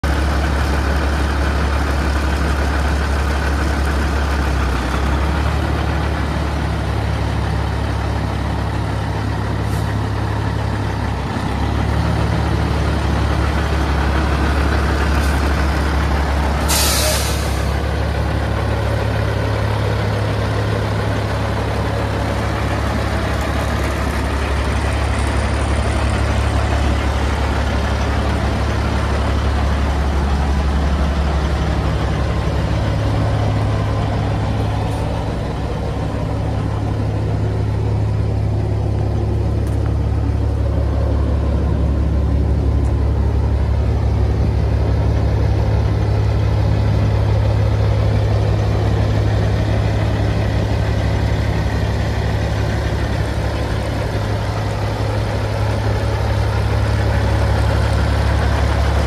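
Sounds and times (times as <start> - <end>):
diesel truck engine idling: 0.0 - 59.0
air brake hiss: 16.6 - 17.7.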